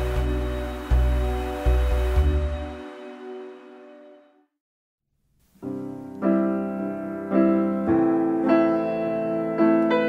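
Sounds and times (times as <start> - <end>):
piano chords ringing: 5.6 - 10.0.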